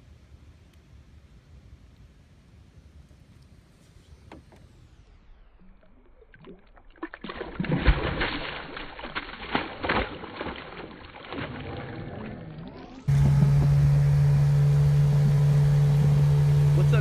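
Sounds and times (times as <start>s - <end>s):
fish splashing in water: 5.6s - 13.1s
outboard motor running: 10.3s - 17.0s.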